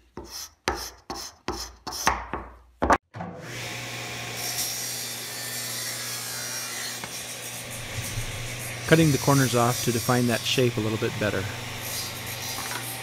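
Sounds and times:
hand scraper rasping wood: 0.2 - 2.2, 7.0 - 13.0
table saw cutting wood: 3.2 - 13.0.

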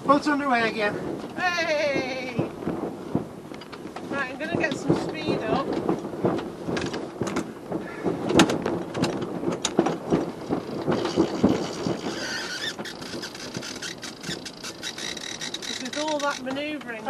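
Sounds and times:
winch pawls clicking: 10.4 - 17.0
winch high squeal: 11.0 - 16.4.

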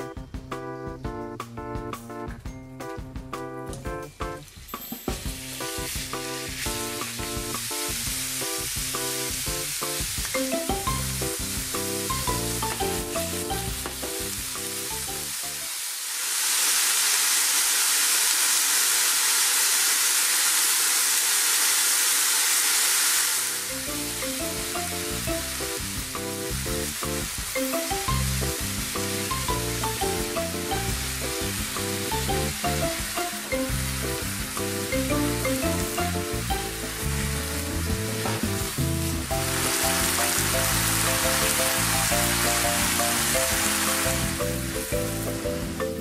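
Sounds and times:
background music: 0.0 - 15.6, 23.6 - 46.0
meat sizzling in a frying pan: 5.1 - 45.8.

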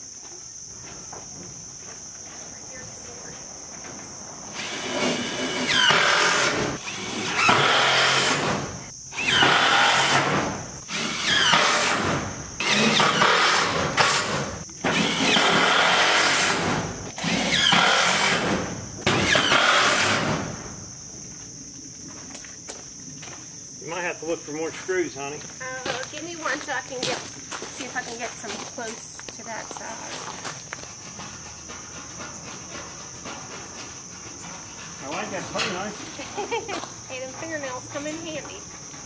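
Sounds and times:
crickets chirping: 0.0 - 39.0
power drill driving screws: 4.5 - 20.4.

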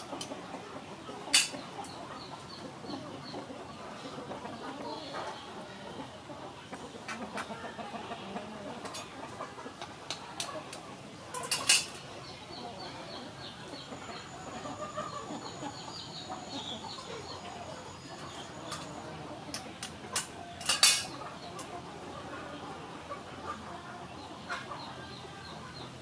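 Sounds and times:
birds chirping: 0.0 - 26.0
clinks against metal plate: 1.3 - 1.6, 11.4 - 12.0, 19.5 - 21.1.

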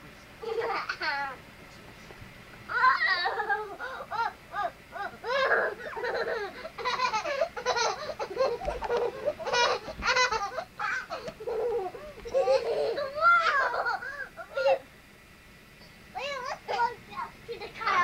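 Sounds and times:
children squealing and laughing: 2.7 - 14.9.

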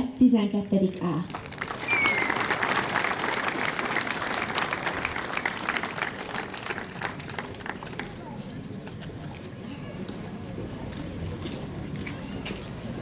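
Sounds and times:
audience applauding: 1.3 - 8.4
short high whistle: 1.8 - 2.4.

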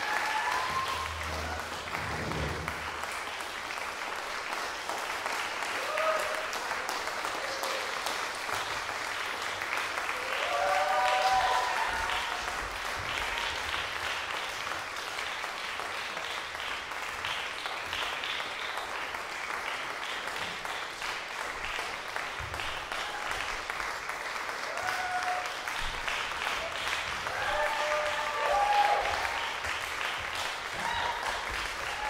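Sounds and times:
audience applauding: 0.0 - 32.0.

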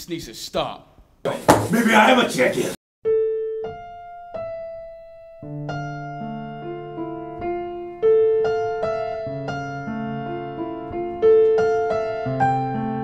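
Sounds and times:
slow piano music: 3.0 - 13.0.

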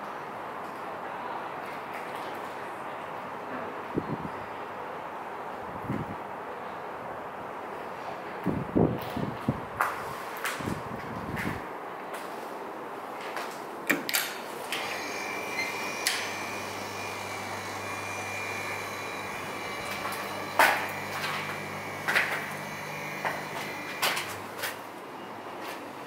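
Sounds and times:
thin high whine: 14.7 - 24.6
low electric hum: 14.8 - 24.9.

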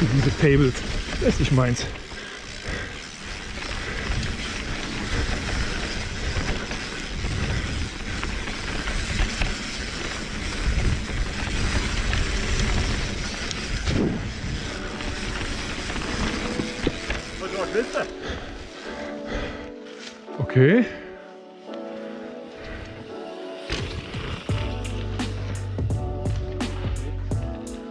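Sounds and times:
bike clicks and clatter: 0.0 - 19.5, 23.6 - 27.9
bike tyres rolling on dirt: 0.0 - 27.9
wind rumbling on microphone: 2.6 - 17.4.

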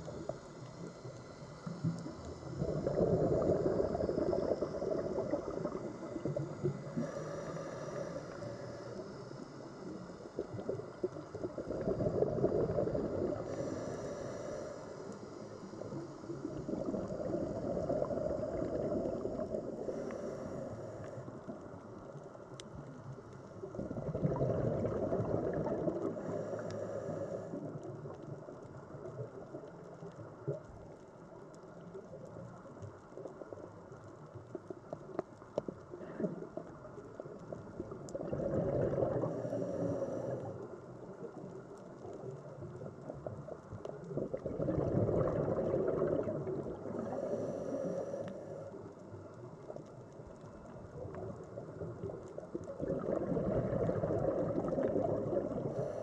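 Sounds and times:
regulator inhale hiss: 0.0 - 21.8, 25.9 - 28.1, 39.1 - 41.3, 46.8 - 49.1, 55.5 - 56.0
exhaled bubbles gurgling: 0.0 - 56.0.

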